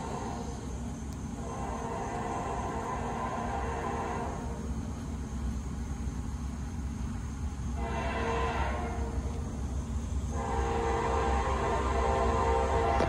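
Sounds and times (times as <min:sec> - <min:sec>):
steady low rumble: 0:00.0 - 0:13.0
distant train air horn: 0:01.4 - 0:04.6, 0:07.8 - 0:09.3, 0:10.3 - 0:13.0.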